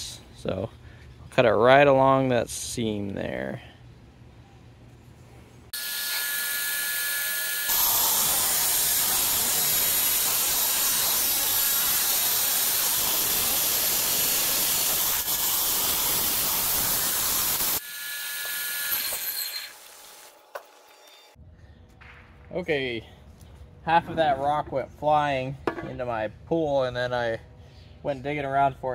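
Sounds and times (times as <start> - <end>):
wet saw whining: 5.8 - 20.3
saw grinding into stone: 5.8 - 21.4.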